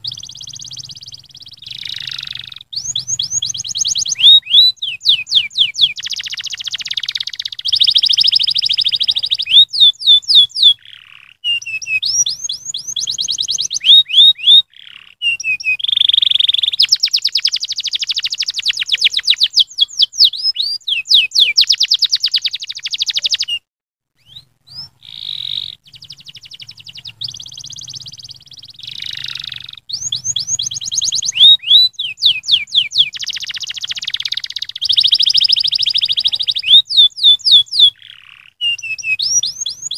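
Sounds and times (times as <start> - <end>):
canary singing: 0.0 - 39.9.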